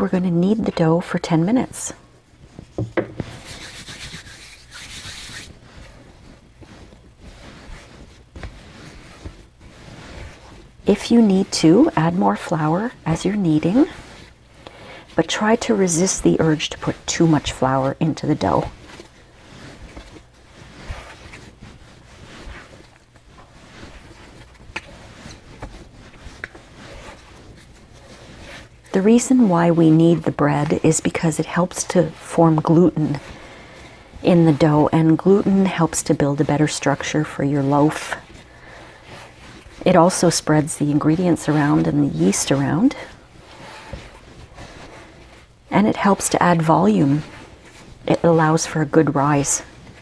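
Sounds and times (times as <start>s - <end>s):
dough rubbing on a mat: 0.0s - 50.0s
soft knocks of dough: 2.7s - 3.3s.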